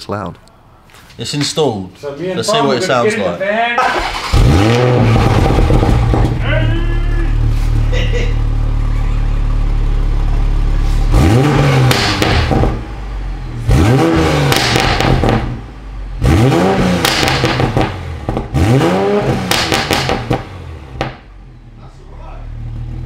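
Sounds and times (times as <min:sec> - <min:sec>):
car engine idling and revving: 0:03.9 - 0:23.0
exhaust pops and crackles: 0:05.0 - 0:06.5, 0:11.8 - 0:12.9, 0:14.4 - 0:15.6, 0:17.0 - 0:18.6, 0:19.4 - 0:21.3.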